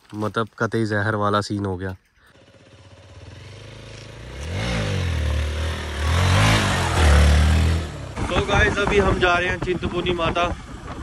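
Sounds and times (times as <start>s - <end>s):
wind and road noise: 0.0s - 11.0s
motorcycle engine revving: 2.3s - 11.0s.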